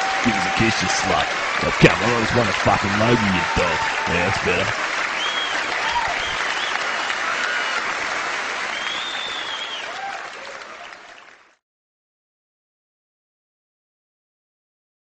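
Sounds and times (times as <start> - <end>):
large audience applauding: 0.0 - 11.6.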